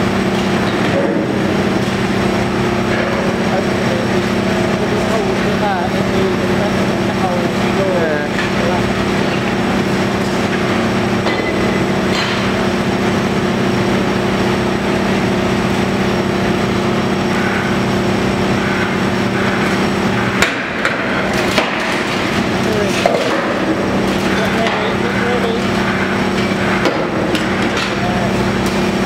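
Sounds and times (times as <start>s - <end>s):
excavator engine and hydraulics: 10.4s - 21.4s, 23.3s - 29.0s.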